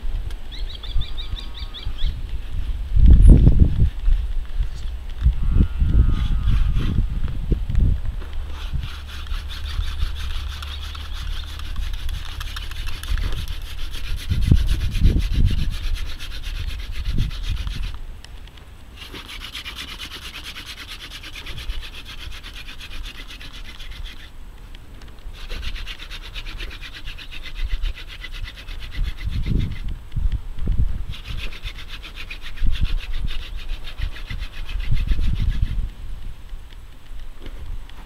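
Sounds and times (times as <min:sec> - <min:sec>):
spindle rasping on wooden board: 0:06.0 - 0:07.0, 0:08.5 - 0:18.0, 0:19.0 - 0:24.3, 0:25.4 - 0:29.9, 0:31.1 - 0:35.8.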